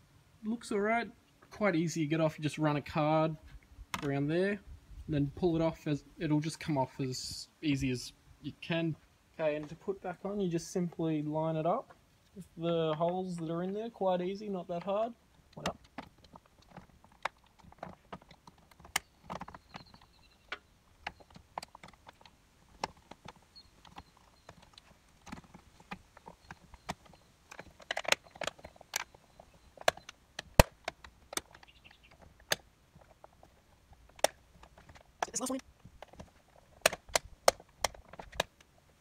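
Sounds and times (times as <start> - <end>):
plastic clicks and knocks: 14.8 - 38.8
plastic clips snapping: 20.5 - 29.2, 29.8 - 33.2, 34.0 - 35.4, 36.0 - 38.7.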